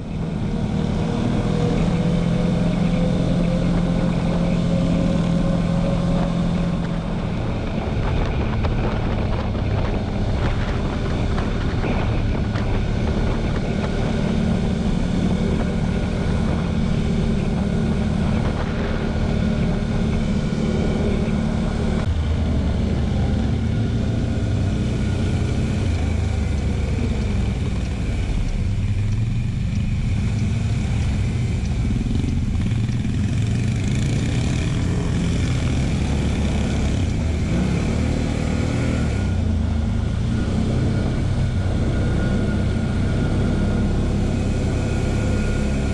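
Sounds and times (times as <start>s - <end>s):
quad bike engine running: 0.0s - 45.9s
wind rush over microphone: 0.0s - 45.9s.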